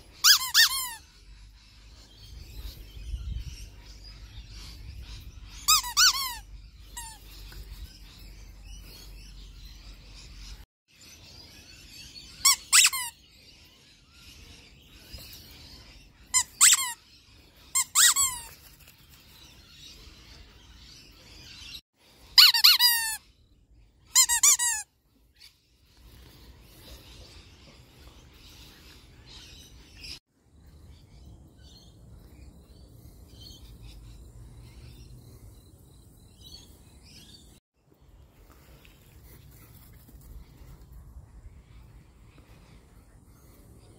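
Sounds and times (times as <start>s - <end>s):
rubber dog toy squeaking: 0.2s - 1.0s, 5.6s - 6.4s, 12.4s - 13.1s, 16.3s - 17.0s, 17.8s - 18.5s, 22.4s - 23.2s, 24.1s - 24.8s.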